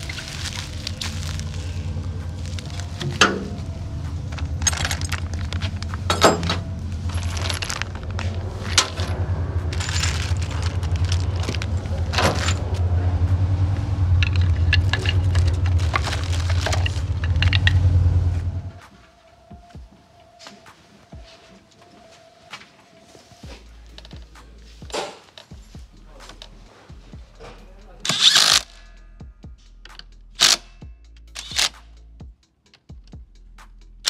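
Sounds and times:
plastic packaging crinkling: 0:00.0 - 0:12.8, 0:14.2 - 0:18.2
metal parts clinking: 0:00.0 - 0:12.9, 0:14.2 - 0:18.1, 0:28.0 - 0:28.7, 0:29.8 - 0:31.8
steady low hum: 0:00.0 - 0:18.8.

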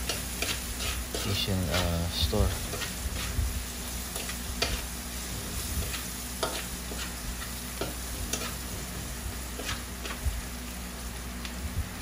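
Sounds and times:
food sizzling in a metal pan: 0:00.0 - 0:11.4
utensil scraping and clinking pan: 0:05.8 - 0:07.2.

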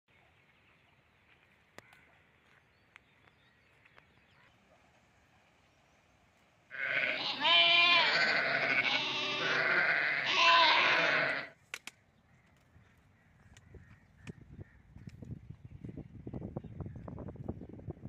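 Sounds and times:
livestock bleating: 0:06.7 - 0:11.6
sharp clicks: 0:11.6 - 0:12.0.

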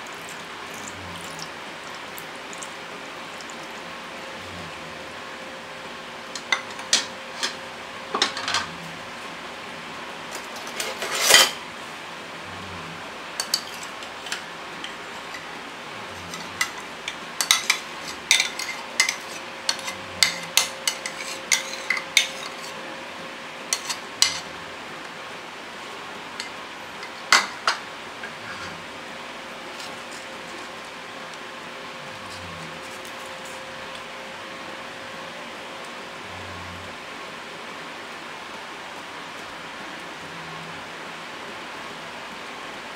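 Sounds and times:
faint steady hum: 0:00.0 - 0:42.9.

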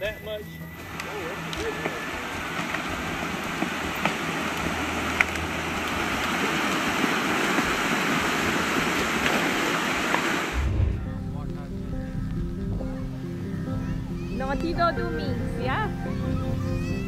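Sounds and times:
trees cracking: 0:00.7 - 0:15.8
water rushing and churning: 0:00.8 - 0:11.3.

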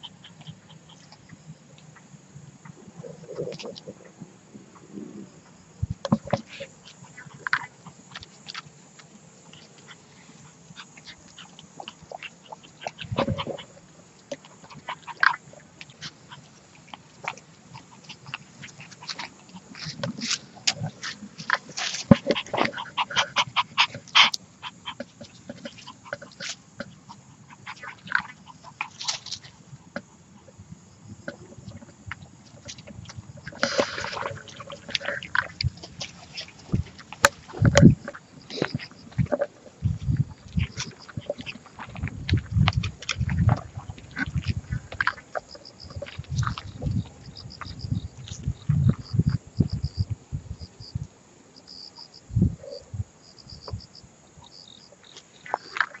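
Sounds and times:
field crickets chirping: 0:00.0 - 0:56.0
rustling: 0:06.0 - 0:30.2
puppies lapping from steel bowl: 0:32.5 - 0:47.0.

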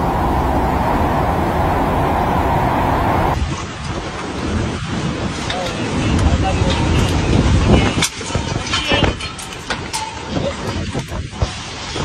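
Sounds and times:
cars driving on wet road: 0:00.0 - 0:03.4
rain on street: 0:00.0 - 0:03.4
heavy rain and wind: 0:00.0 - 0:12.0.

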